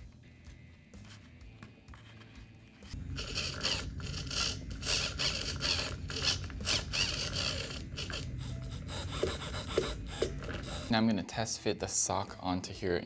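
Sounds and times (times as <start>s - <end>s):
servo motors whirring: 2.9s - 10.9s.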